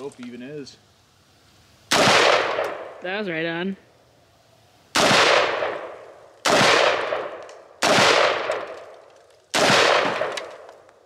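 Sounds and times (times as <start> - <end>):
rifle shots with echo: 1.9 - 3.0, 5.0 - 10.8.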